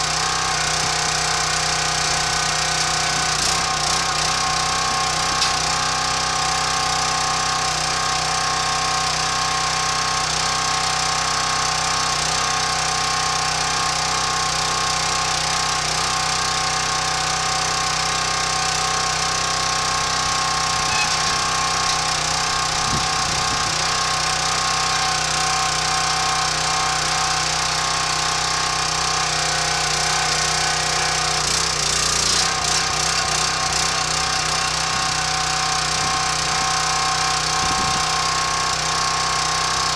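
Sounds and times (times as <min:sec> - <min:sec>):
small gasoline engine running: 0:00.0 - 0:39.9.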